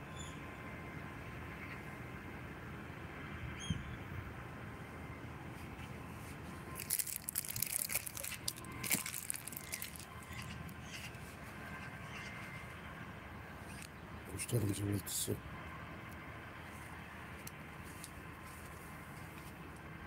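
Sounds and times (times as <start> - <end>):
low background hum: 0.0 - 20.0
birds chirping: 7.8 - 15.4.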